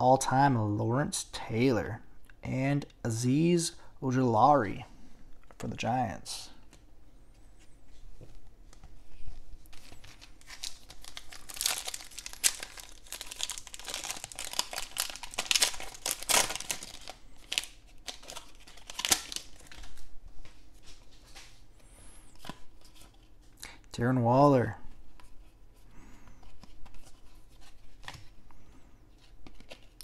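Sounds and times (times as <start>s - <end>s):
foil wrapper crinkling: 9.6s - 20.1s.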